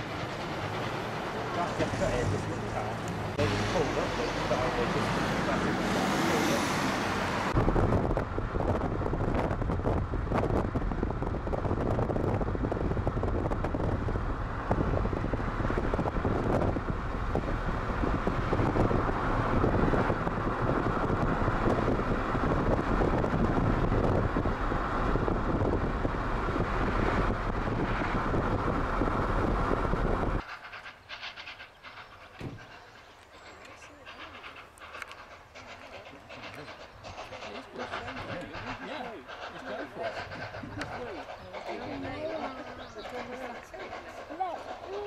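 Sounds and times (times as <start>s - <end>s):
car road and engine noise: 0.0s - 30.5s
wind on microphone: 7.3s - 30.4s.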